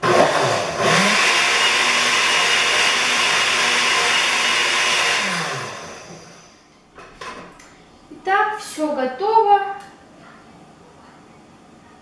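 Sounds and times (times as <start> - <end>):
blender running: 0.0 - 6.6.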